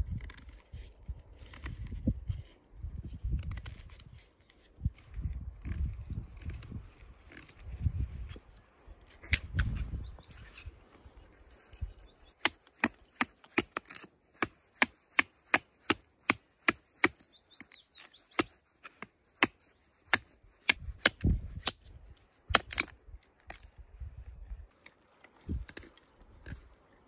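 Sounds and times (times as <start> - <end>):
knife chopping into wood: 12.4 - 17.2.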